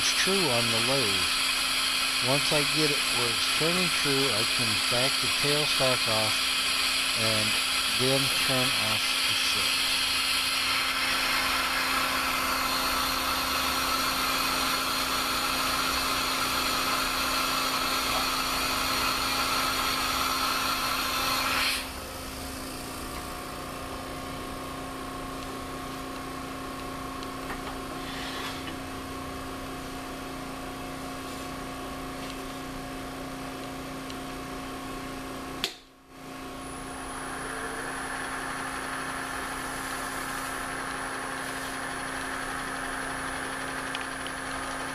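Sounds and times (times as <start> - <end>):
wood lathe whining: 0.0 - 22.0, 37.0 - 44.9.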